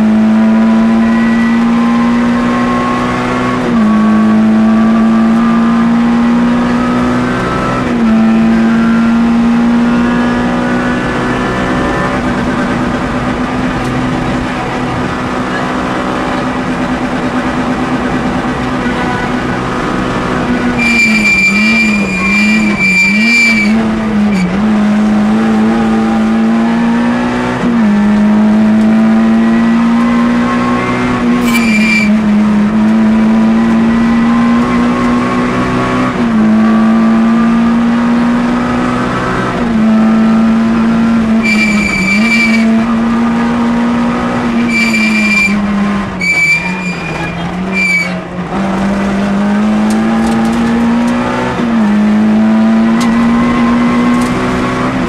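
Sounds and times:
rally car engine at high revs: 0:00.0 - 0:55.0
tyres squealing: 0:20.6 - 0:24.6, 0:31.2 - 0:32.3, 0:41.4 - 0:42.8, 0:44.5 - 0:48.5.

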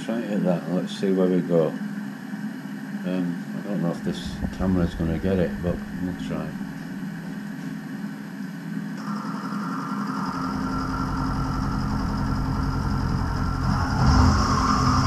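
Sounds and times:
milling machine motor hum: 0:01.7 - 0:15.0
high-pitched metal cutting noise: 0:03.7 - 0:07.2, 0:09.0 - 0:15.0.

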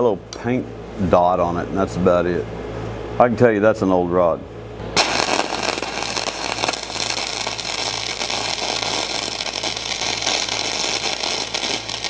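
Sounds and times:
welding arc crackling sizzle: 0:05.0 - 0:12.0.

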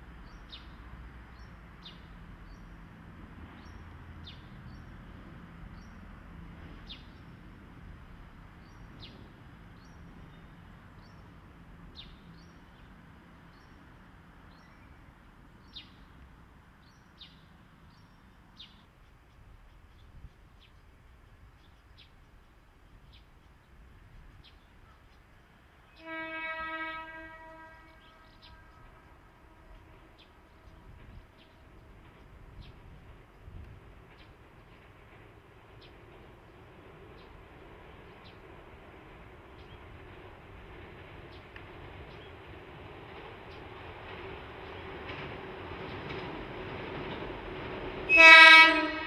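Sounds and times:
train horn: 0:25.9 - 0:31.8, 0:48.1 - 0:49.0.

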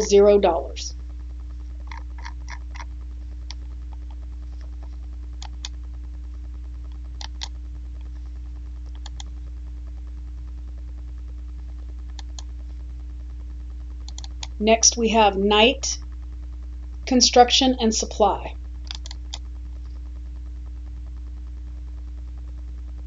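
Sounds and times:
steady low hum: 0:00.0 - 0:23.0
computer mouse clicks: 0:01.9 - 0:02.9, 0:04.8 - 0:05.8, 0:07.2 - 0:07.5, 0:08.9 - 0:09.3, 0:12.1 - 0:12.5, 0:14.0 - 0:14.6, 0:18.8 - 0:19.4.

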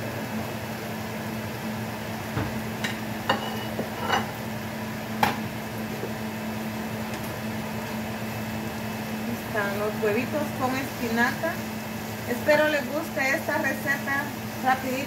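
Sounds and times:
steady hum: 0:00.0 - 0:15.0
utensil knocking in frying pan: 0:05.2 - 0:05.4.

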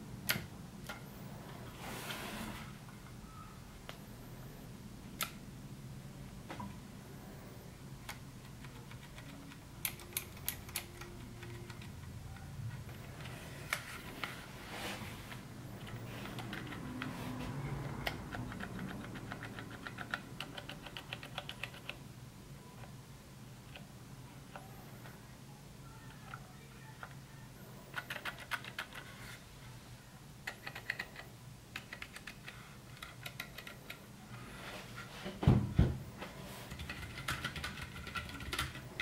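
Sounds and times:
typing on mechanical keyboard: 0:08.4 - 0:13.8, 0:15.8 - 0:22.0, 0:27.9 - 0:29.1, 0:30.5 - 0:34.0, 0:36.7 - 0:39.0.

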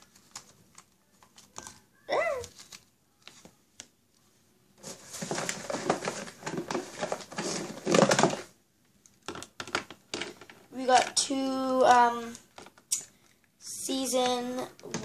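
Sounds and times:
rustling cardboard and packaging: 0:00.0 - 0:03.8, 0:04.8 - 0:11.2.

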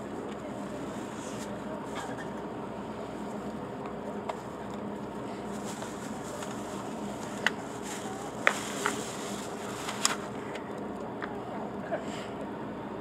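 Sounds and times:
ballpark background noise: 0:00.0 - 0:13.0.

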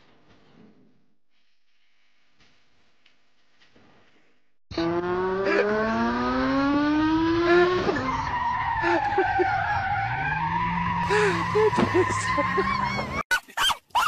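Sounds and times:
scooter engine accelerating: 0:04.7 - 0:13.2.

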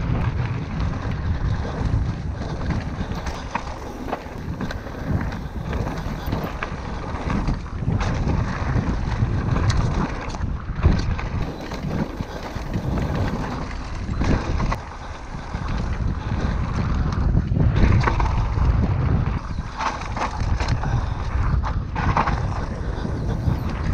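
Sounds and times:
wind buffeting microphone: 0:00.0 - 0:23.9
bike clattering over bumps: 0:00.1 - 0:17.2
tyres rolling over dirt: 0:01.4 - 0:07.7, 0:11.4 - 0:14.8.

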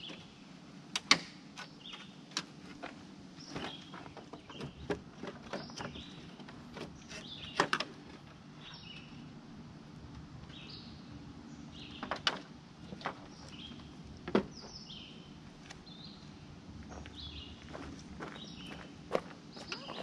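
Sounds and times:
birds chirping: 0:01.6 - 0:02.4, 0:03.3 - 0:09.4, 0:10.4 - 0:20.0.

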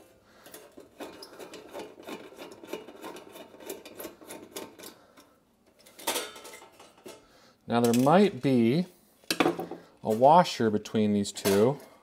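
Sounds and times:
screwdriver scraping and clicking: 0:00.5 - 0:05.0.

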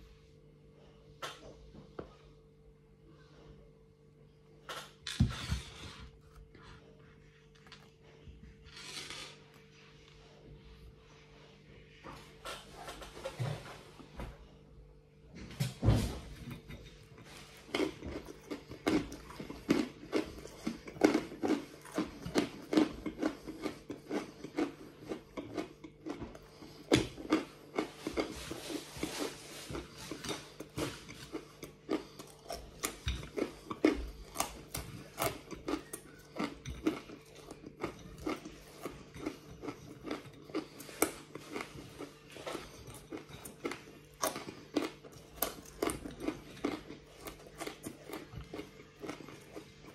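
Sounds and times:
crunching and chewing fried garlic: 0:05.7 - 0:09.7, 0:16.3 - 0:49.9.

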